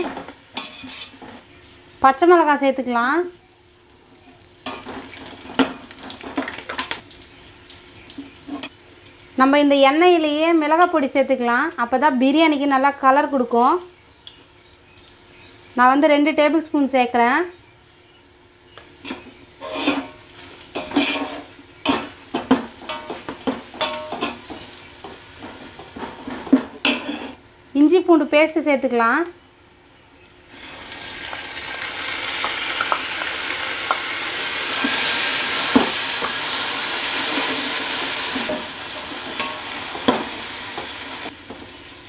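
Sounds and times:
oil sizzling: 0.0 - 16.3, 18.8 - 27.6, 30.5 - 42.0
metal skimmer scraping a pot: 0.6 - 1.4, 19.6 - 21.5.

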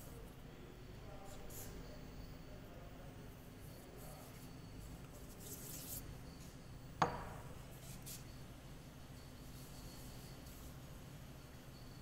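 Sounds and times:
metal knock on wooden workbench: 7.0 - 7.4.

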